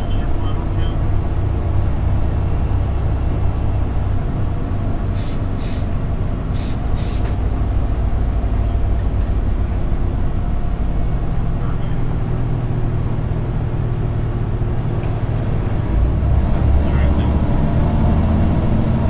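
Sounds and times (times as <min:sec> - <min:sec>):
diesel engine droning: 0:00.0 - 0:19.0
short air hisses: 0:05.1 - 0:05.9, 0:06.5 - 0:07.4.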